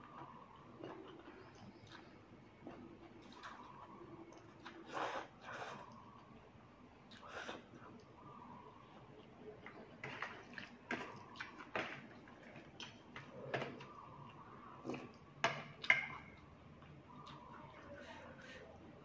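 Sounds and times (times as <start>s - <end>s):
person chewing and slurping noodles: 0.1s - 6.0s.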